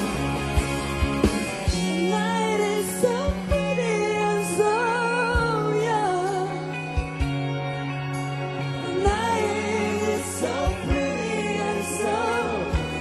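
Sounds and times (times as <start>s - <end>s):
drum beats: 0.0s - 2.4s
woman singing: 1.9s - 6.7s.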